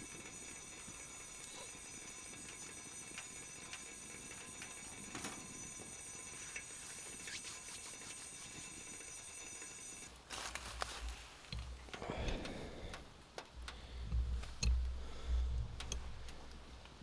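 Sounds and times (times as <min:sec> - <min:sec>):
wood fire crackling: 0:00.0 - 0:17.0
rustle: 0:10.1 - 0:12.0.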